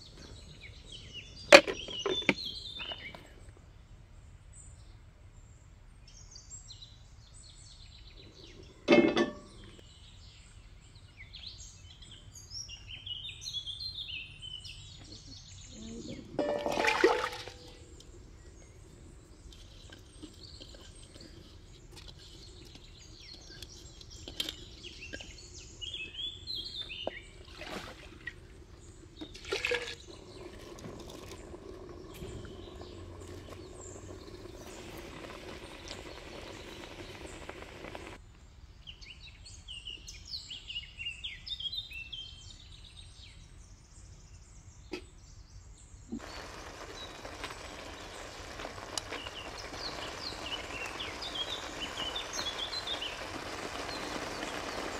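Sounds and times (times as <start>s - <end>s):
small birds chirping: 6.1s - 16.7s, 17.4s - 27.6s, 28.2s - 54.9s
pot and ladle clinking: 8.9s - 9.7s, 16.4s - 17.7s
liquid sloshing in pot: 16.4s - 17.8s, 29.2s - 38.2s.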